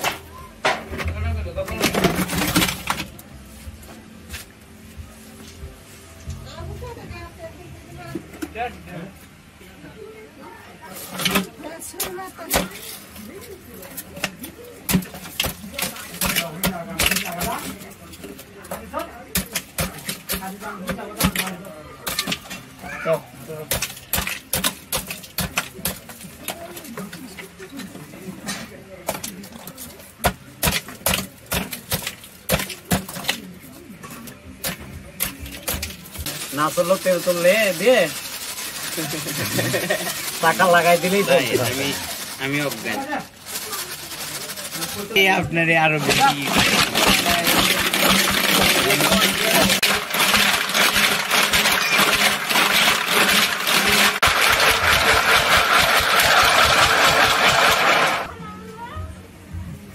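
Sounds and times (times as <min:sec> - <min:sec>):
ice and moulds rattling in metal pot: 0:01.6 - 0:03.2, 0:10.9 - 0:27.9, 0:29.1 - 0:33.6, 0:34.6 - 0:58.3.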